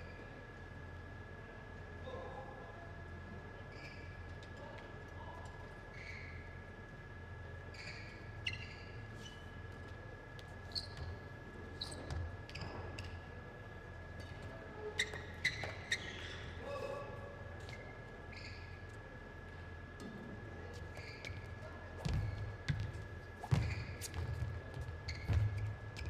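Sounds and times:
shoes squeaking on sports floor: 7.7 - 9.6, 10.4 - 13.2, 15.0 - 16.6, 20.8 - 26.0.

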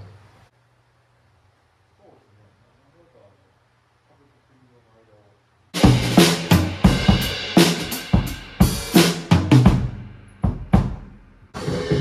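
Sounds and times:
drum kit playing: 5.8 - 12.0
crashing cymbals: 11.6 - 12.0.

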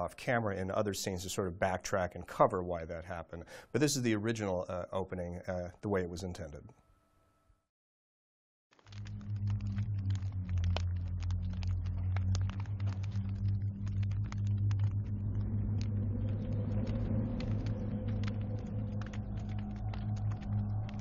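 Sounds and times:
fire crackling and popping: 8.7 - 21.0
deep low rumble: 8.9 - 21.0.

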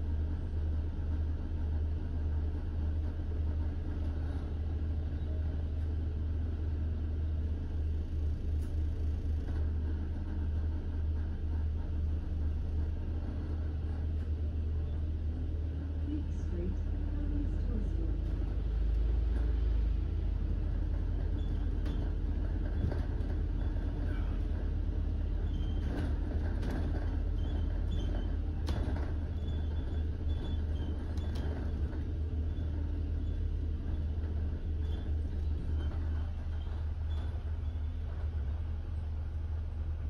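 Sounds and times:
bus interior rumble: 0.0 - 40.0
scattered clicks and knocks: 20.8 - 32.9.

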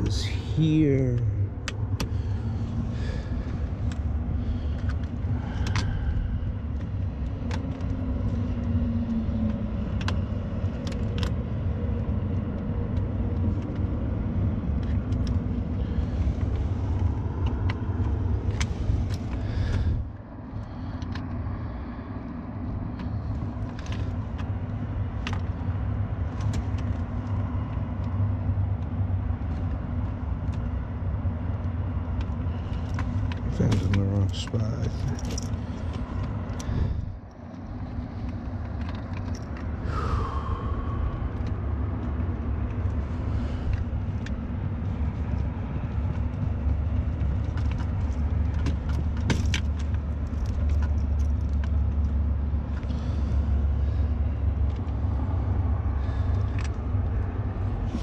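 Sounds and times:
low rumble: 32.3 - 58.0.

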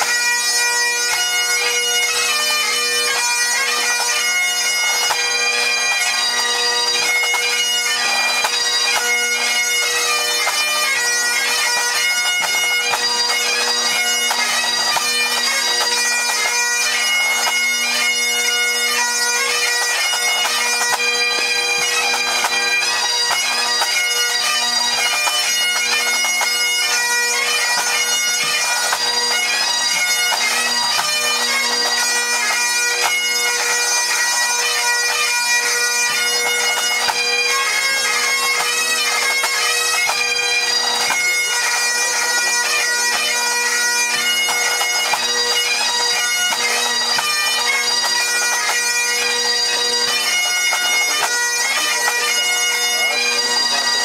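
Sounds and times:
bagpipes with drones: 0.0 - 54.0.

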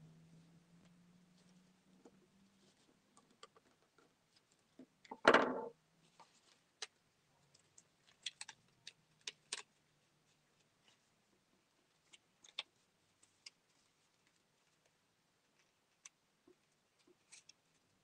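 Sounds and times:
paper straw and paper clicking: 6.2 - 11.0, 11.9 - 18.0.

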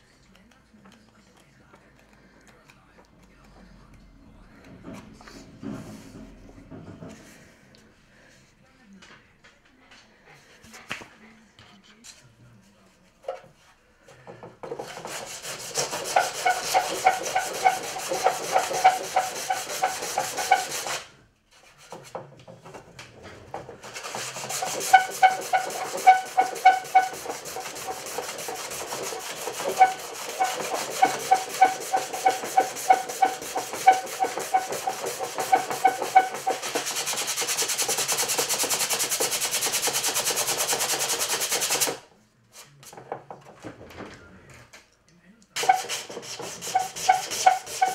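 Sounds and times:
sandpaper rubbing on hull: 14.6 - 22.2, 23.6 - 42.0, 45.6 - 47.9.

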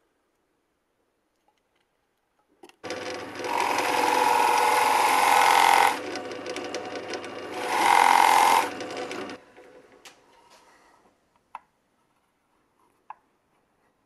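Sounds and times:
drill press boring into wood: 2.8 - 9.4.

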